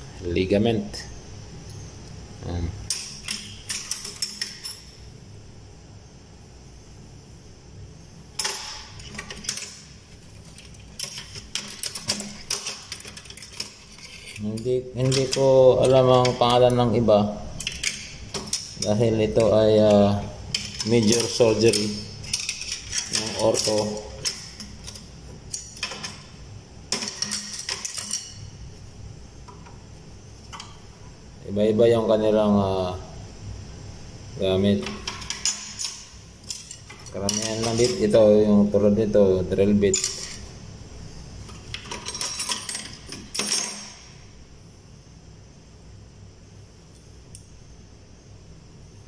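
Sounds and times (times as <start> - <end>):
metal instruments clinking: 8.4 - 16.9, 17.5 - 28.6, 34.8 - 38.3, 39.9 - 40.6, 41.4 - 44.2.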